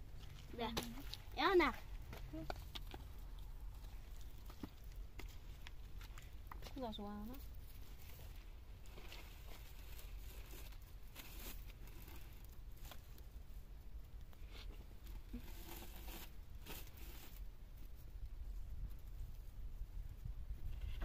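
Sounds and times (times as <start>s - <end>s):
cord rustling and scraping: 7.4s - 13.3s, 14.4s - 18.0s, 20.6s - 21.0s.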